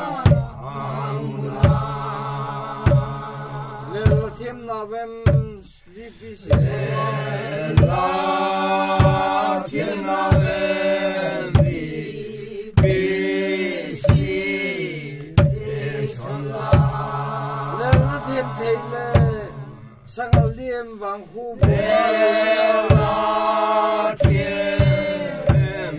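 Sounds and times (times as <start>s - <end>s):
hand drum beats: 0.0s - 4.5s, 5.2s - 5.6s, 6.4s - 12.0s, 12.7s - 13.2s, 13.9s - 19.5s, 20.3s - 20.7s, 21.6s - 25.9s
men and women singing in unison: 0.0s - 25.9s.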